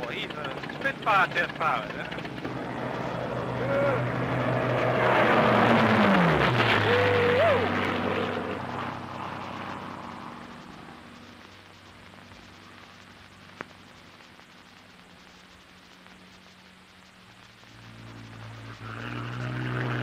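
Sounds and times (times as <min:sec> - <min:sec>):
fighter plane sweeping past: 0:02.2 - 0:07.0.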